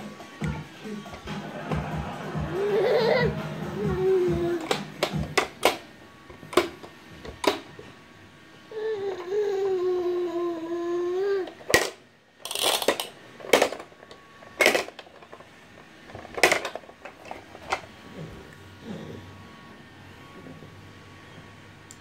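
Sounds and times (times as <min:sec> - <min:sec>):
toy lids snapping: 0:04.6 - 0:05.9, 0:06.5 - 0:07.7, 0:11.5 - 0:15.4, 0:16.2 - 0:17.8.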